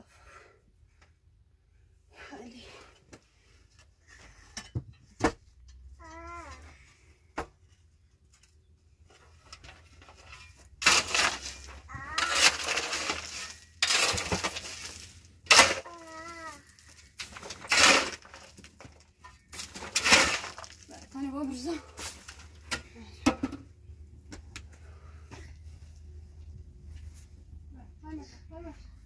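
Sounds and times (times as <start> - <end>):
shovel scraping gravelly soil: 10.0 - 22.6
stones rattling: 10.1 - 21.3.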